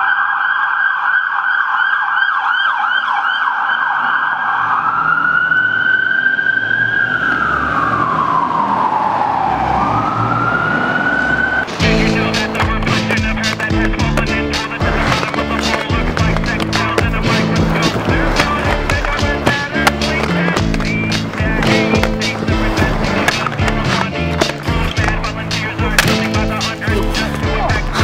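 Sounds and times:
emergency vehicle siren: 0:00.0 - 0:28.0
low traffic rumble: 0:04.4 - 0:28.0
music: 0:11.7 - 0:28.0
skateboard clacks: 0:11.7 - 0:28.0.

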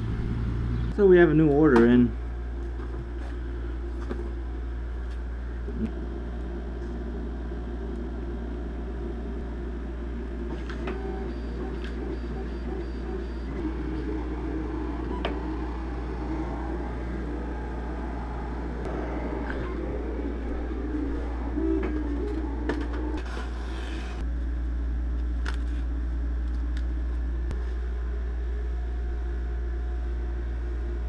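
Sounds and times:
vinyl cutter motor hum: 0:02.5 - 0:24.2.

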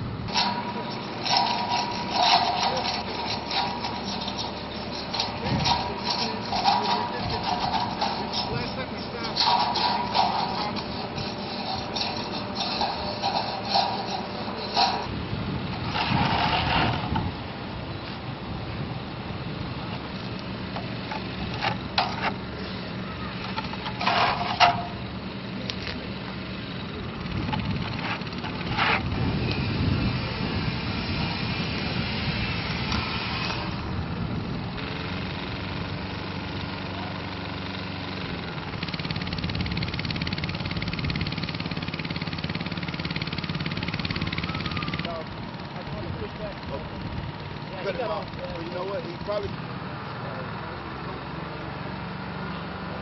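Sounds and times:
engine running steadily: 0:00.0 - 0:53.0
sharp scrapes and knocks: 0:00.3 - 0:17.3, 0:20.2 - 0:25.0, 0:27.5 - 0:29.6.

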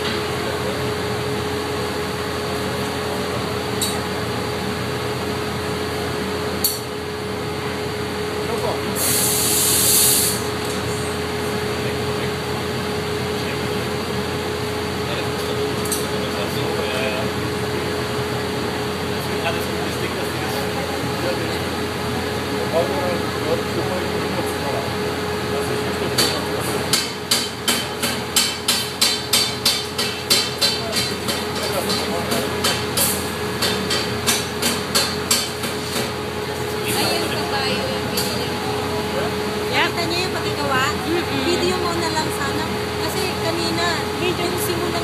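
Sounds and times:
furnace and fan hum: 0:00.0 - 0:45.0
short sharp hiss: 0:09.0 - 0:10.5.

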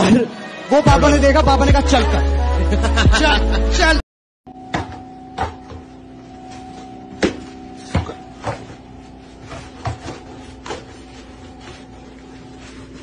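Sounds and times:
steady low hum: 0:04.8 - 0:13.0
stick knocking on wooden floor: 0:07.2 - 0:08.8, 0:09.5 - 0:11.0.

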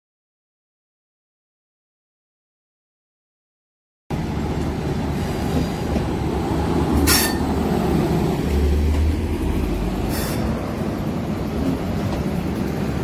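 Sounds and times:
train rumbling: 0:04.1 - 0:13.0
short hisses: 0:10.1 - 0:10.5.

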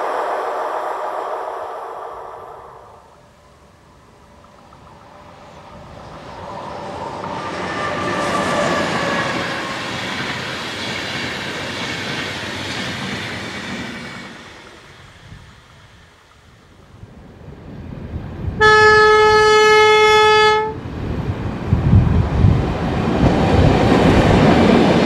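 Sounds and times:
locomotive whine: 0:00.0 - 0:12.0
train wheels rumbling on rails: 0:00.0 - 0:18.6, 0:20.7 - 0:25.0.

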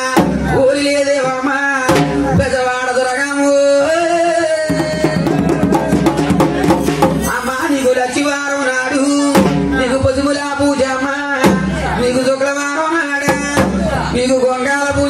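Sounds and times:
drumming: 0:01.9 - 0:02.6, 0:04.7 - 0:07.9, 0:09.3 - 0:12.3, 0:13.2 - 0:14.3.

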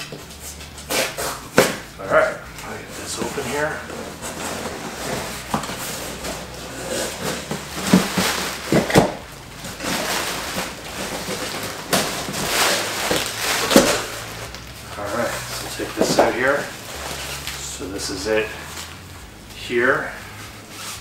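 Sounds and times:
cardboard tearing and rustling: 0:02.7 - 0:19.0.

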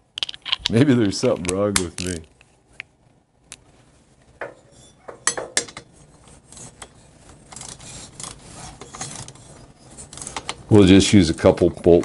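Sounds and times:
bolt scraping rasp: 0:06.4 - 0:10.6.

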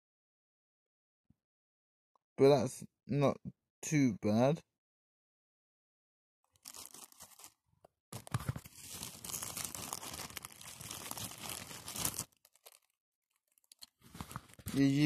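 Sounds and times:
plastic bags crinkling: 0:06.5 - 0:07.6, 0:08.2 - 0:15.0.

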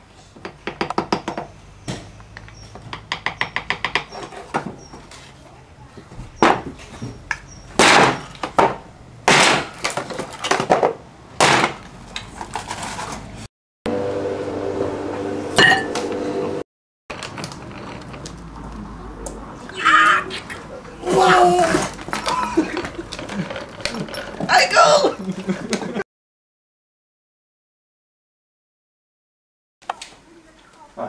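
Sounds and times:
hammer tapping a chisel: 0:02.5 - 0:04.2
mallet smashing a block: 0:07.8 - 0:09.9, 0:11.4 - 0:11.8.

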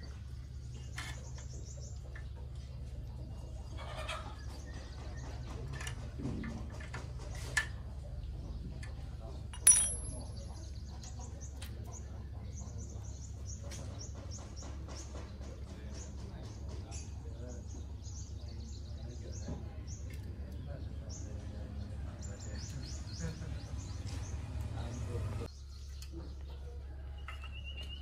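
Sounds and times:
birds chirping: 0:00.0 - 0:06.2, 0:07.8 - 0:28.0
sharp metal clank: 0:09.6 - 0:10.4.

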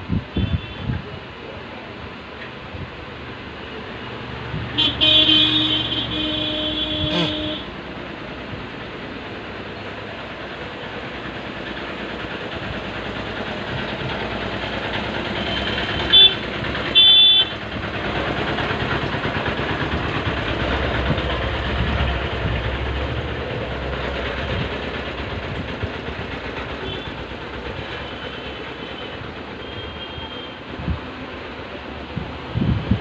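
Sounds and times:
passing traffic engines: 0:00.0 - 0:33.0
deep engine rumble: 0:02.1 - 0:33.0
high-pitched car honks: 0:04.8 - 0:07.7, 0:15.4 - 0:17.6, 0:28.9 - 0:30.6.

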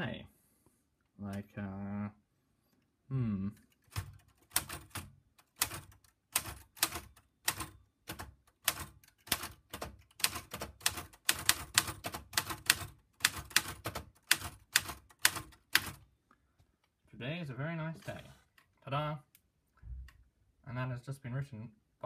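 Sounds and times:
manual typewriter keys clacking: 0:03.6 - 0:16.0.

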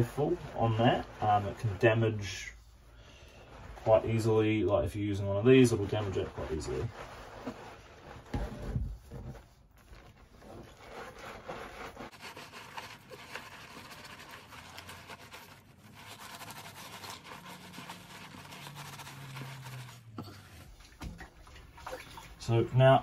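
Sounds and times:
loofah scrubbing fabric: 0:00.0 - 0:23.0
low bumps from handling mask: 0:06.6 - 0:11.0.

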